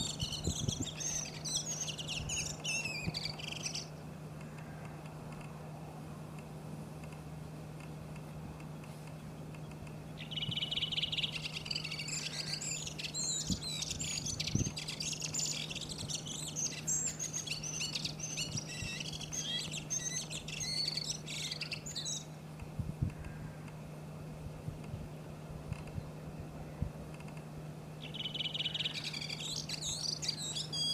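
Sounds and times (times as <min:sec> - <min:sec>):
bird singing warble: 0:00.0 - 0:05.1, 0:08.6 - 0:22.5, 0:28.0 - 0:30.9
low steady hum: 0:00.0 - 0:30.9.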